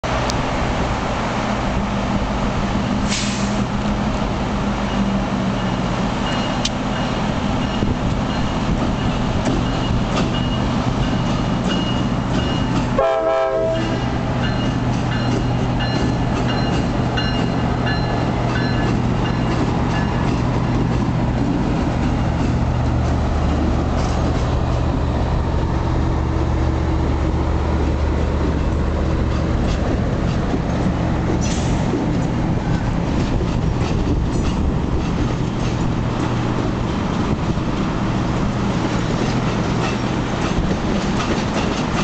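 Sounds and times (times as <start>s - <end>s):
diesel locomotive engines droning: 0.0s - 42.0s
wheel and rail noise: 0.0s - 42.0s
train horn blast: 13.0s - 14.2s.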